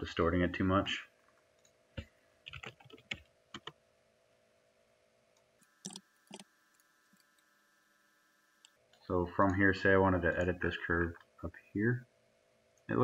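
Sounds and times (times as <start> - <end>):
faint steady hum: 0.0 - 13.0
keyboard keys clicking: 2.5 - 3.7.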